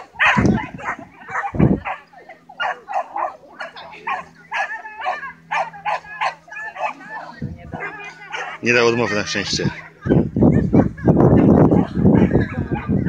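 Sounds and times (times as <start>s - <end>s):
dog barking: 0.2s - 2.0s, 2.6s - 7.0s, 7.8s - 9.3s.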